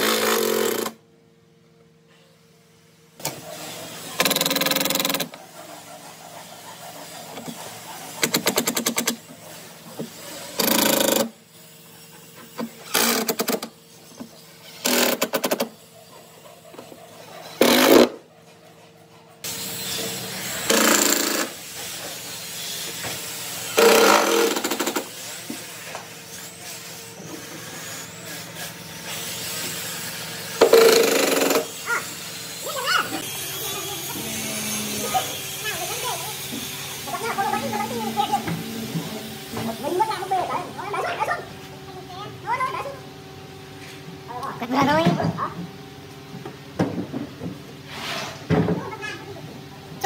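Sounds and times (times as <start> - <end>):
steady background hum: 0.0 - 50.0
impact driver hammering: 23.8 - 25.0.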